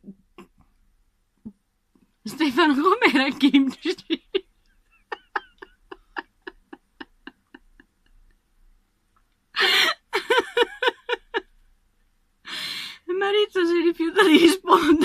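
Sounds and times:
person laughing: 0:03.3 - 0:08.1, 0:09.6 - 0:11.5.

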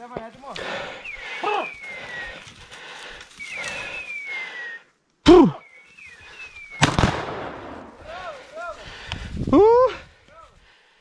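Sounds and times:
falling whistled calls: 0:00.6 - 0:07.2
short loud calls: 0:00.8 - 0:02.4
shotgun shot: 0:06.8 - 0:08.0.

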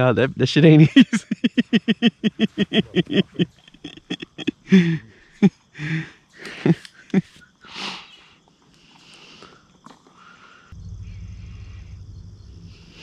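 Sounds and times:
man laughing hard: 0:00.8 - 0:07.4
wheezing gasps: 0:04.6 - 0:10.8.

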